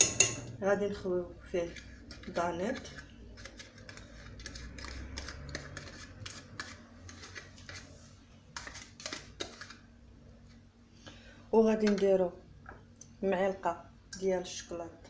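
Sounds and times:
spoon scraping and clicking bowl: 0.0 - 0.5, 1.7 - 7.8.

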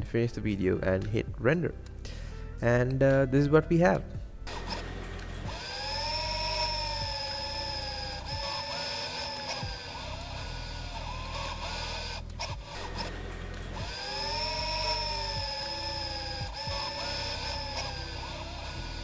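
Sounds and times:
small electric motors whirring: 4.5 - 19.0.

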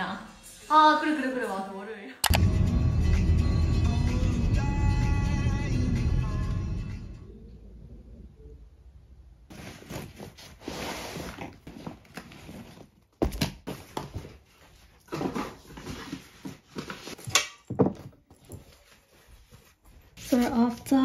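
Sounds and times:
soft rustling: 18.3 - 21.0.

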